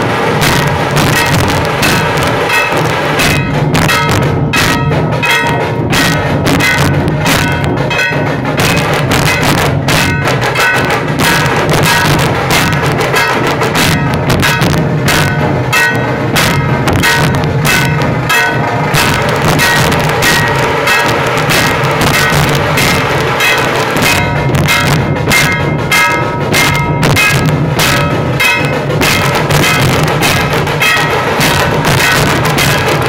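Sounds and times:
barrel drums beaten with sticks: 0.0s - 33.0s
metallic ringing: 0.4s - 33.0s.

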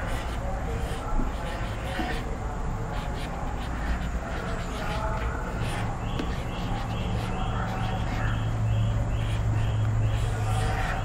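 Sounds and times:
marker writing on a whiteboard: 0.0s - 11.0s
steady low hum: 0.0s - 11.0s.

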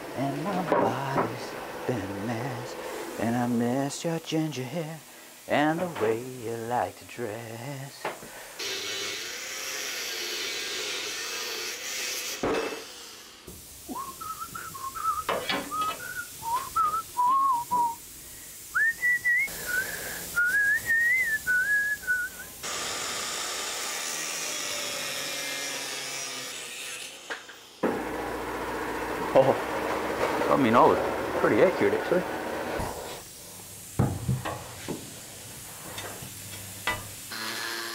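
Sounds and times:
angle grinder cutting steel: 8.6s - 13.5s, 22.6s - 33.2s, 36.9s - 37.9s
person whistling a tune: 13.9s - 18.0s, 18.7s - 22.5s.

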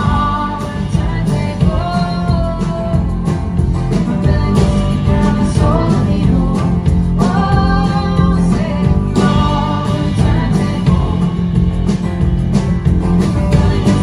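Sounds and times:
woman singing: 0.0s - 12.0s, 13.3s - 14.0s
drum kit: 0.0s - 14.0s
strummed acoustic guitar: 0.0s - 14.0s
upright bass: 0.0s - 14.0s.

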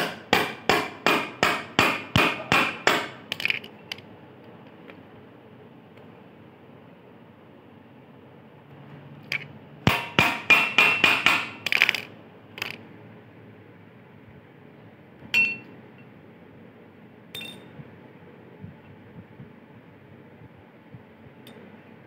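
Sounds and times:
metal clink: 15.4s - 15.7s, 17.3s - 17.7s
metal-on-metal strikes: 15.4s - 15.7s.

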